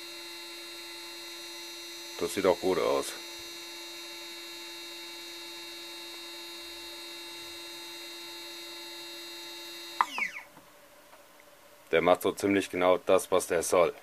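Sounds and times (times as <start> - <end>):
electric motor whine: 0.0 - 10.5.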